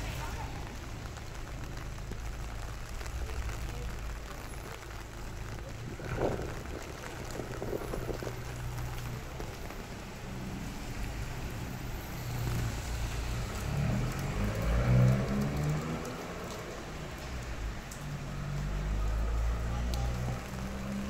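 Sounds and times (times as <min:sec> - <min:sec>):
rain on street: 0:00.0 - 0:21.0
car passing by: 0:10.1 - 0:21.0.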